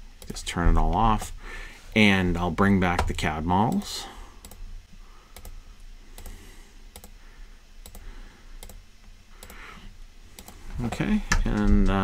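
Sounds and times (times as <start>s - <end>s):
low steady hum: 0.0s - 12.0s
computer mouse clicking: 5.3s - 5.6s, 6.2s - 7.2s, 7.8s - 8.0s, 8.6s - 8.8s, 9.4s - 9.6s, 10.3s - 10.6s.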